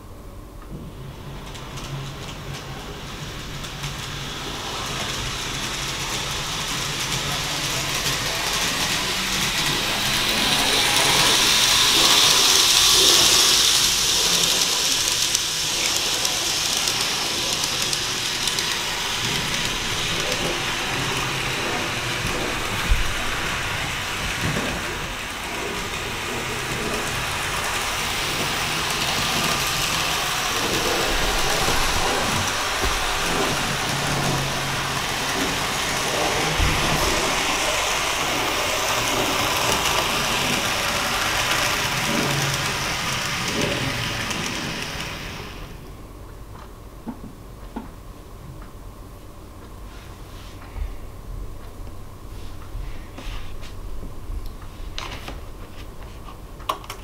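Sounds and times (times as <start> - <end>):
model train running on track: 0.6 - 46.0.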